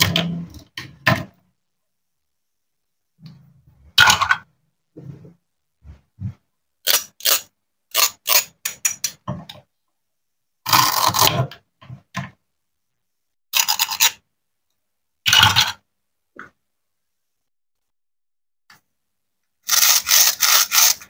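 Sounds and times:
velcro ripping apart: 19.7s - 21.0s.

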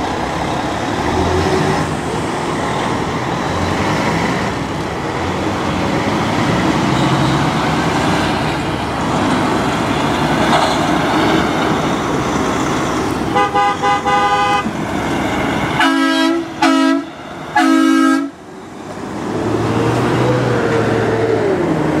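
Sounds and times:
diesel truck engines rumbling: 0.0s - 22.0s
truck engine revving: 0.0s - 22.0s
air horn: 13.3s - 14.7s, 15.8s - 18.4s
deep train-style horn blasts: 13.3s - 14.7s, 15.8s - 18.4s.

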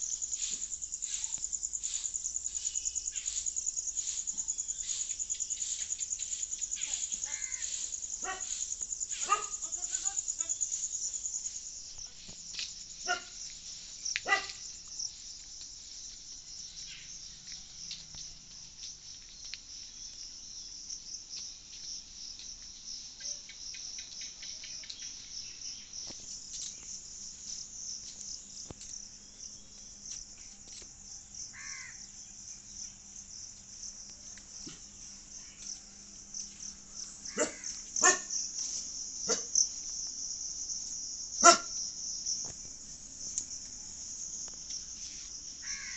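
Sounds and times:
insects chorus: 0.0s - 45.9s
dog barking: 8.2s - 8.6s, 9.2s - 10.2s, 13.0s - 13.4s, 14.2s - 14.6s, 37.3s - 38.4s, 39.3s - 39.6s, 41.4s - 41.8s.

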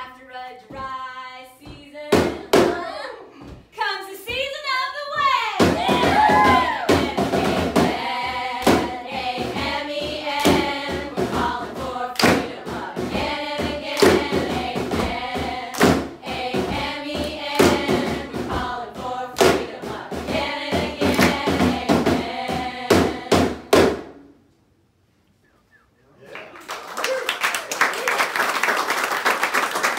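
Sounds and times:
sharp percussive beats: 5.6s - 24.4s
group singing together: 5.8s - 23.9s.

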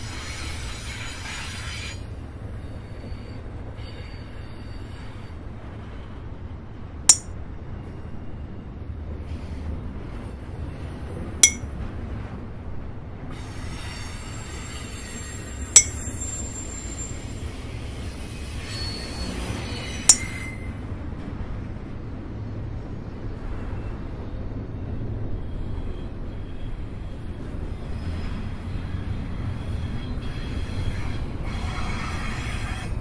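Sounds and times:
freight train rumbling: 0.0s - 33.0s
sharp metallic clinks: 11.4s - 11.6s, 15.8s - 16.3s, 20.1s - 20.3s
high metallic squeal: 13.5s - 20.8s.

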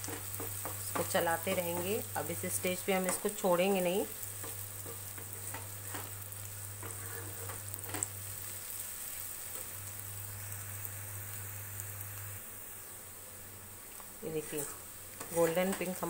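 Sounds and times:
onions sizzling in oil: 0.0s - 16.0s
metal spatula scraping pan: 6.8s - 7.6s.

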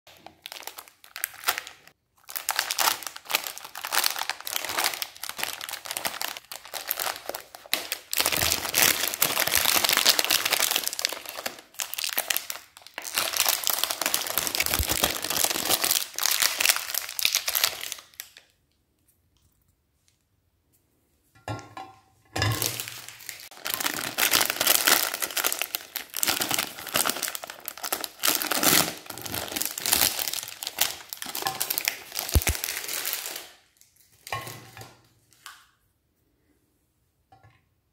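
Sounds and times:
plastic wrappers crinkling: 0.1s - 18.7s, 22.5s - 35.6s.

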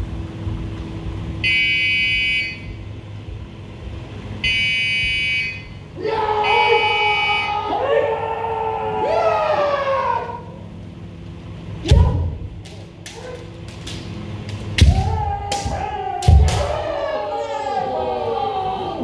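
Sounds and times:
people shouting long kiai: 5.9s - 10.6s, 11.8s - 13.7s, 14.8s - 19.0s.

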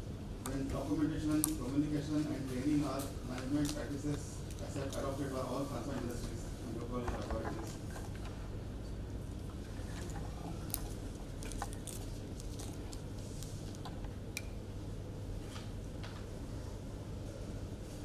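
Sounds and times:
faint clicks and handling noises: 2.4s - 5.2s, 9.4s - 14.5s.

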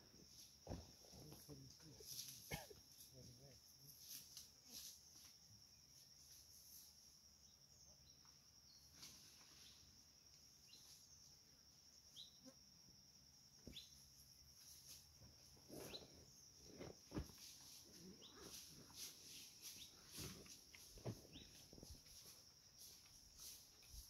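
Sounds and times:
insect drone: 0.0s - 24.0s
bird chirps: 13.6s - 14.0s, 15.8s - 16.1s.

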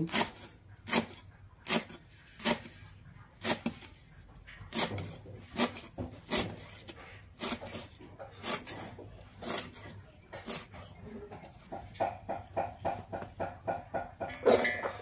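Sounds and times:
knife chopping on cutting board: 0.0s - 2.8s, 4.7s - 9.8s, 10.4s - 14.4s.

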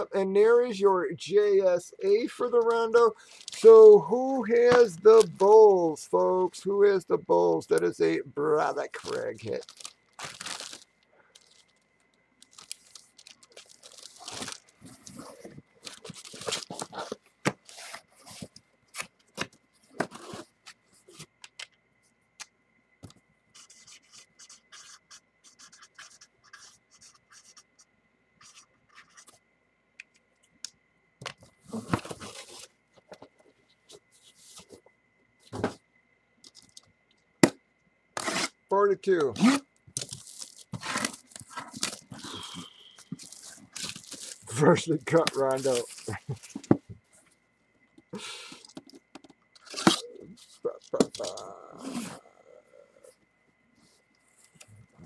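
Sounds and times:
plastic wrapping crinkling: 8.9s - 18.4s, 40.0s - 46.7s.

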